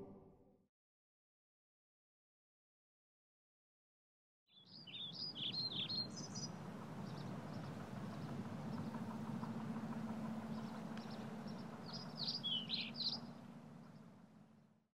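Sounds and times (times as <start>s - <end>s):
bird chirping: 4.5s - 9.5s, 10.4s - 14.1s
low city hum: 4.5s - 14.9s.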